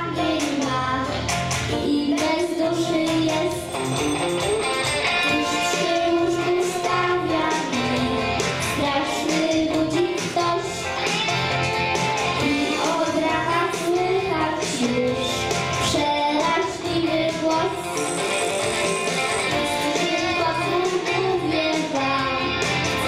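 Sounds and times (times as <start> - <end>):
boy singing into a microphone: 0.0 - 1.1, 1.7 - 3.8, 4.4 - 10.8, 12.4 - 18.0, 19.5 - 22.6
pop backing track with guitar: 0.0 - 23.0.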